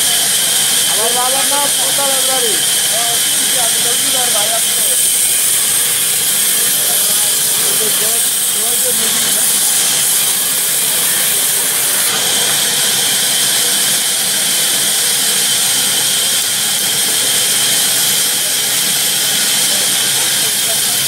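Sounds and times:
band saw cutting log: 0:00.0 - 0:21.0.

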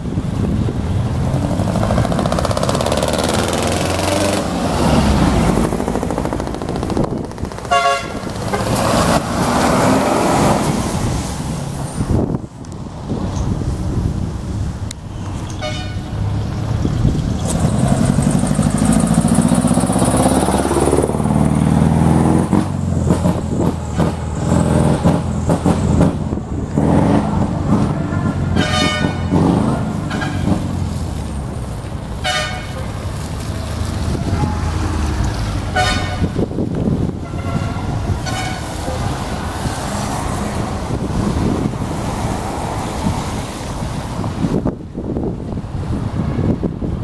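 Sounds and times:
heavy truck engines on wet road: 0:00.0 - 0:47.0
short horn toots: 0:28.5 - 0:29.4, 0:35.7 - 0:36.3.

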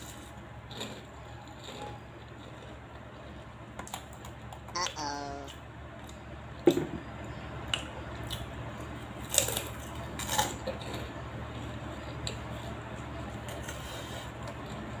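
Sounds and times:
cracker crunching while chewing: 0:00.0 - 0:04.7, 0:07.6 - 0:15.0.

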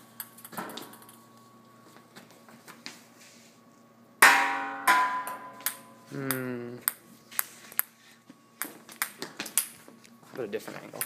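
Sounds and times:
loud ringing hits: 0:04.2 - 0:06.1
ping-pong ball bouncing on floor: 0:04.3 - 0:07.0, 0:08.6 - 0:09.7.

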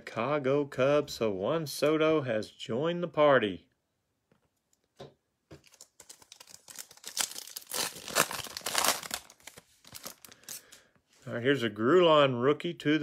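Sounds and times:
foil wrapper crackling: 0:05.6 - 0:10.8.

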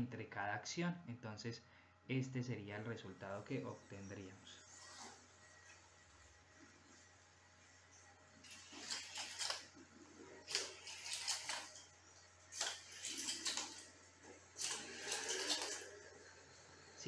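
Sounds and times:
small robot motors whirring: 0:04.6 - 0:16.7.

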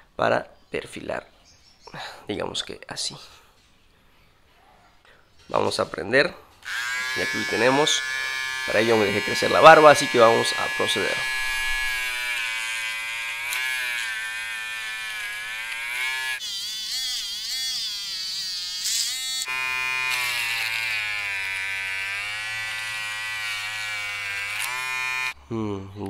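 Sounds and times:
electric shaver buzzing: 0:06.6 - 0:25.4.

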